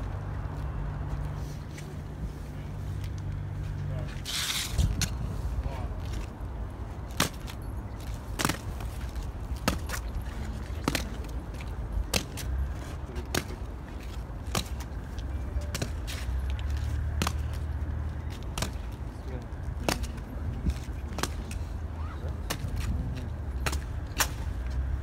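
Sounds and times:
boots striking stone paving: 7.1s - 19.0s.

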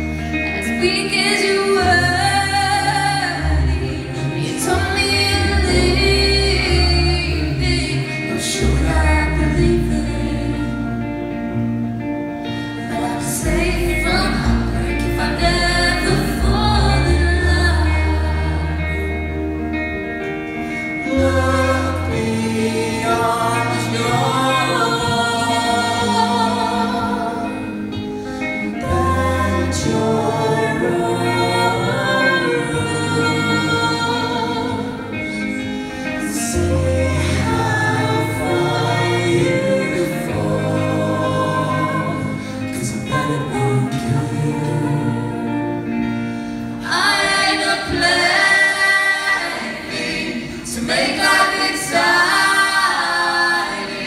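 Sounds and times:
audience singing along: 0.0s - 54.0s
live rock band playing: 0.0s - 54.0s
person singing: 12.6s - 54.0s.

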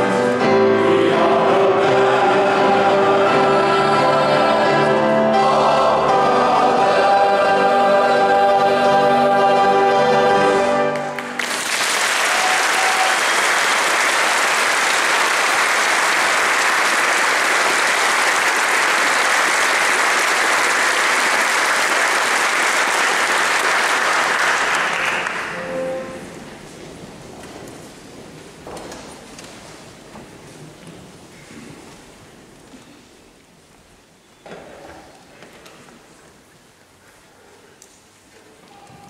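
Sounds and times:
boys' choir singing: 0.0s - 11.2s
audience applause: 10.9s - 25.6s.

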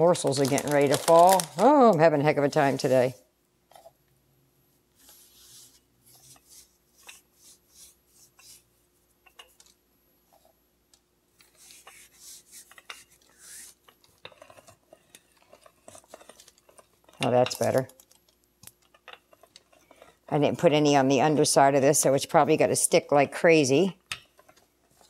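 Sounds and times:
paper rustling: 0.1s - 1.8s
rolling pin rubbing over dough: 4.9s - 9.2s, 11.4s - 17.1s.

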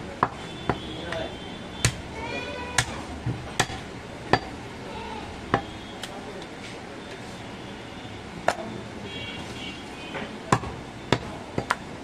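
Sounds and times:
voices murmuring: 0.0s - 12.0s
knife chopping meat on wood: 0.2s - 2.0s.

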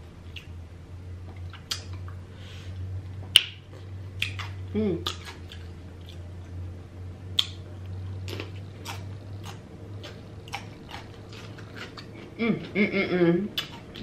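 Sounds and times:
steady low hum: 0.0s - 14.0s
wet mouth chewing clicks: 1.4s - 2.1s, 4.2s - 6.2s, 7.4s - 7.6s, 8.3s - 12.3s.

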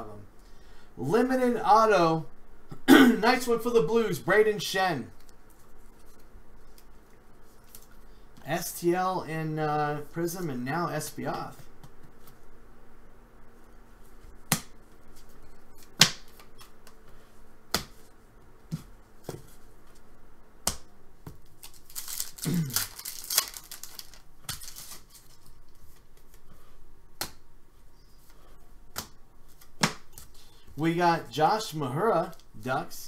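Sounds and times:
foil wrapper crinkling: 21.4s - 26.0s.

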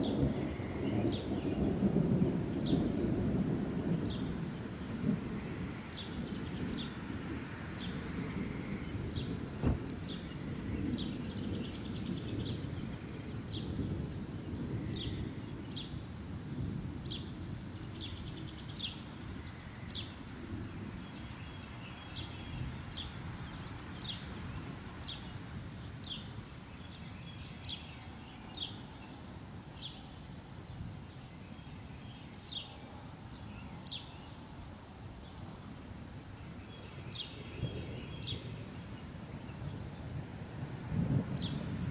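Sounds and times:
distant thunder rumbling: 0.0s - 15.8s, 37.6s - 41.9s.

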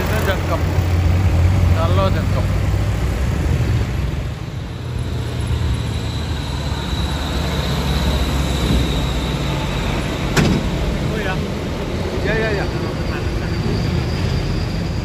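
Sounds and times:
tyre noise on road: 0.0s - 13.0s
diesel truck driving past: 0.0s - 15.0s.

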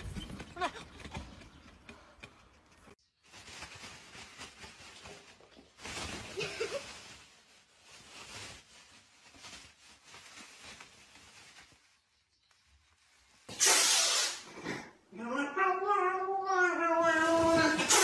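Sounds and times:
plastic bag rustling: 3.3s - 12.3s.

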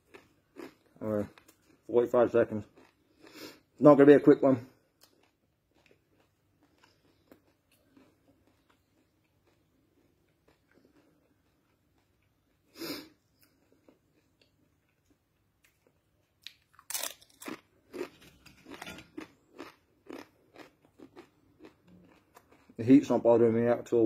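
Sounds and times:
corn chip crunching: 0.0s - 3.0s, 13.4s - 22.8s.

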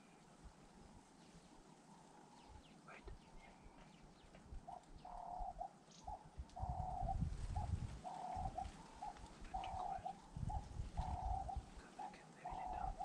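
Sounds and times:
dove cooing: 4.5s - 13.0s.

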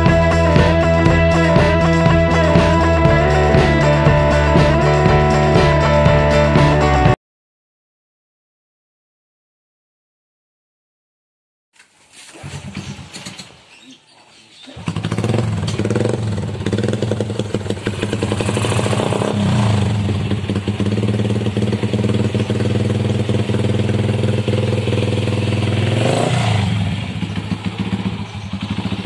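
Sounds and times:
motorcycle engine idling and revving: 0.0s - 7.2s, 12.4s - 13.5s, 14.7s - 29.0s.

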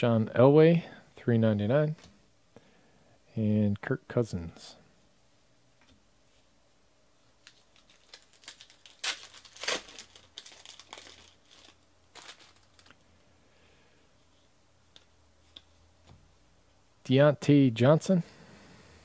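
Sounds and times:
foil wrapper crinkling and ripping: 7.4s - 13.0s.

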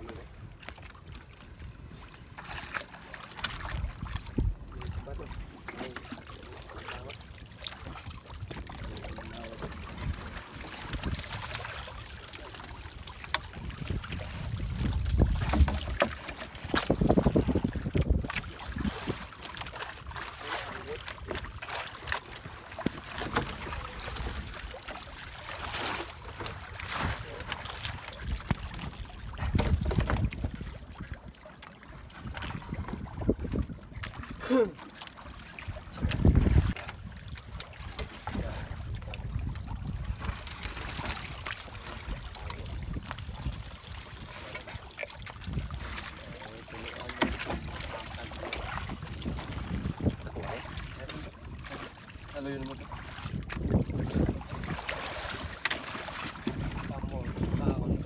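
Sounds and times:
water splashing and trickling: 0.0s - 58.0s
wind buffeting microphone: 3.6s - 5.5s, 8.0s - 12.1s, 13.5s - 19.3s, 26.6s - 31.4s, 32.1s - 34.4s, 35.7s - 37.6s, 38.2s - 46.8s, 47.6s - 51.7s, 52.8s - 55.6s, 56.2s - 58.0s
water trickling and dripping: 26.3s - 50.2s.

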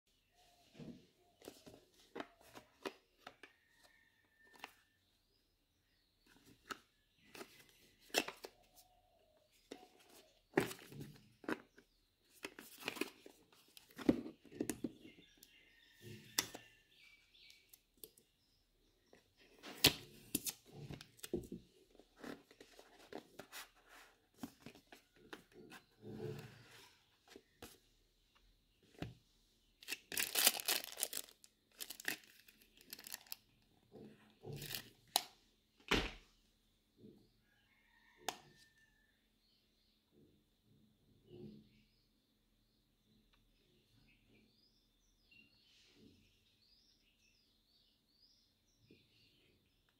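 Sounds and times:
packaging tearing and crinkling: 29.8s - 33.4s.

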